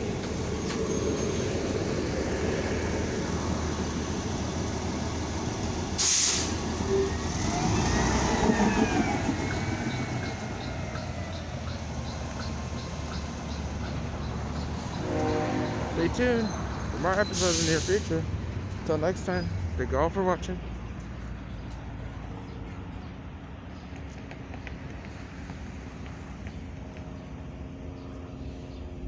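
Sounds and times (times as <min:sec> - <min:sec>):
engine whine: 0:00.0 - 0:17.5
bus engine running: 0:00.0 - 0:29.0
air brake hiss: 0:06.0 - 0:06.6, 0:17.3 - 0:18.1.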